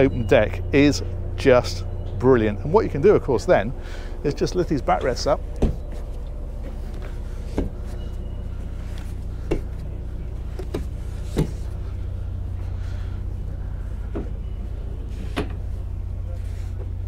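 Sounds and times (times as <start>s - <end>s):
steady low hum: 0.0s - 17.0s
seat backrests knocking and clicking: 10.6s - 11.6s.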